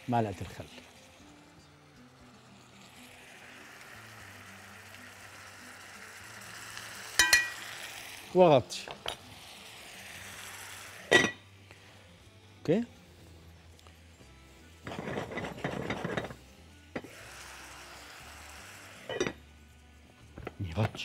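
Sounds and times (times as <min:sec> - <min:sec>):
meat sizzling in a pot: 0:00.0 - 0:21.0
sharp clink: 0:07.2 - 0:07.6.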